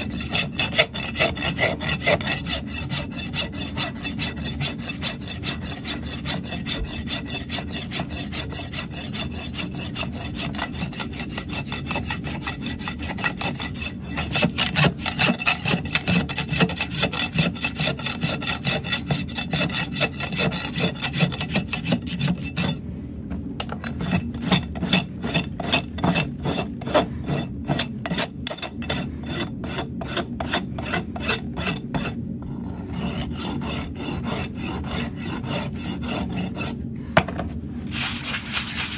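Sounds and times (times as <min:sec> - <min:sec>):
rasp scraping hoof: 0:00.0 - 0:22.8.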